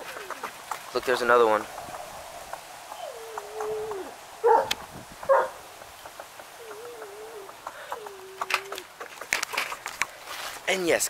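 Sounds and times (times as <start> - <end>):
bird cooing: 0.0 - 0.8, 1.7 - 10.0
dog barking sharply: 4.4 - 5.6.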